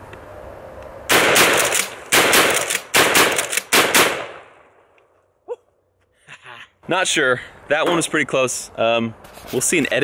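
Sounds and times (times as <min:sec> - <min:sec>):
shotgun pump action: 0:01.1 - 0:04.3
shotgun shots: 0:01.1 - 0:04.7.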